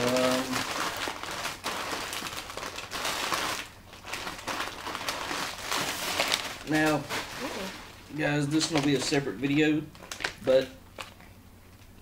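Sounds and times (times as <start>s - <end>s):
plastic bag rustling: 0.0s - 11.3s.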